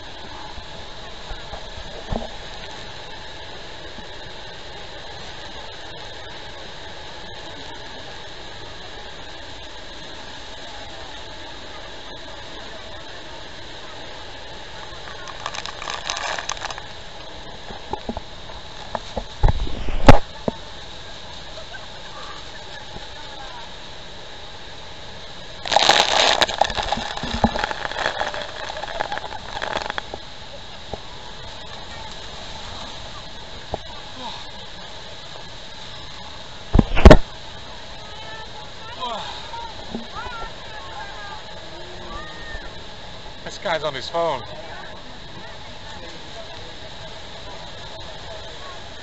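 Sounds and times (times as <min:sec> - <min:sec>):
steady rushing noise: 0:00.0 - 0:49.0
water spattering: 0:14.8 - 0:17.0, 0:25.6 - 0:30.3
waterfall roaring: 0:25.5 - 0:43.2
wind blast on microphone: 0:36.7 - 0:37.3.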